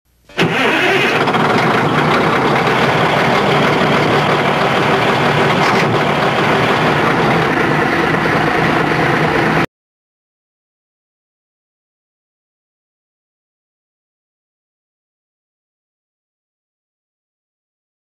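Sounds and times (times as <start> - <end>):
large engine running: 0.3 - 9.7.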